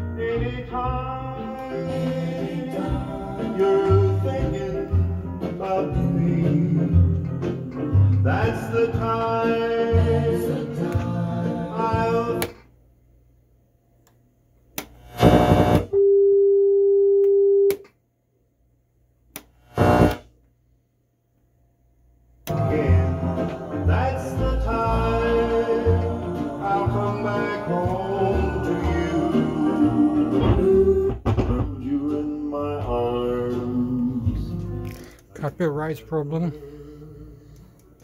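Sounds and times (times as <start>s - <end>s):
radio music with singing: 0.2s - 7.1s, 22.5s - 38.0s
radio stations tuning snatches: 15.0s - 15.9s, 19.7s - 20.2s.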